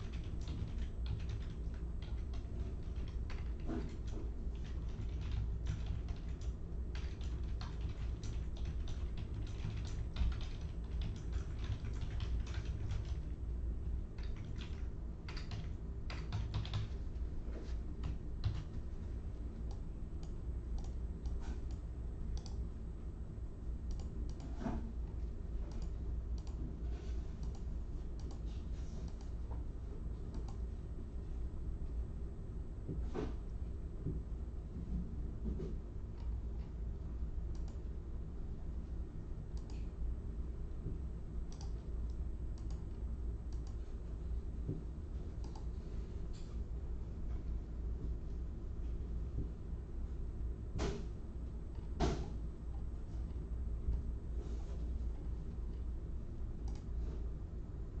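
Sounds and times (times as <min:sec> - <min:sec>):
typing on computer keyboard: 0:00.0 - 0:13.3, 0:14.2 - 0:17.0, 0:18.0 - 0:18.8
steady low hum: 0:00.0 - 0:58.0.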